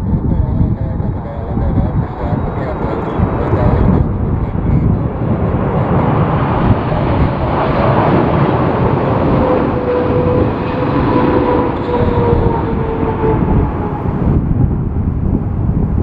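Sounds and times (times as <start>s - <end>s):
jet engines roaring: 0.0s - 15.6s
jet engine whine: 0.0s - 16.0s
wind buffeting microphone: 0.0s - 16.0s.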